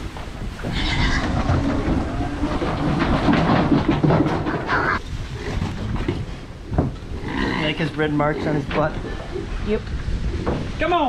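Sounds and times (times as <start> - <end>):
hooves clattering on metal floor: 0.1 - 5.0.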